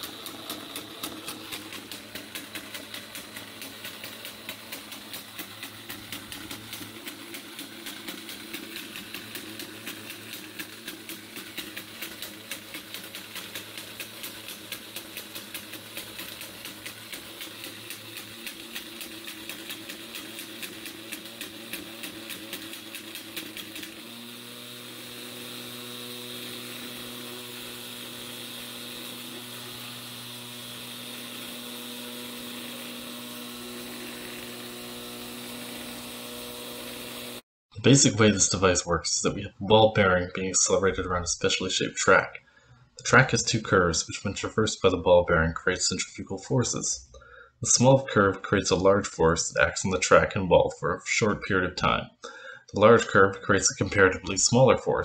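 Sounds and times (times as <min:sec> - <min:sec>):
ball bearing rapid clicks: 0:00.0 - 0:23.9
small electric motor whirring: 0:00.0 - 0:37.4.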